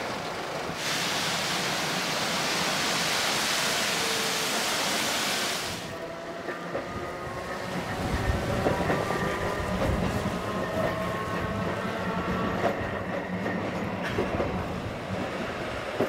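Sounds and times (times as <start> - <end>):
tram whining tones: 0.0 - 16.0
loud steady hiss: 0.8 - 5.9
tram low rumble: 5.7 - 16.0
rail clacks: 7.6 - 16.0.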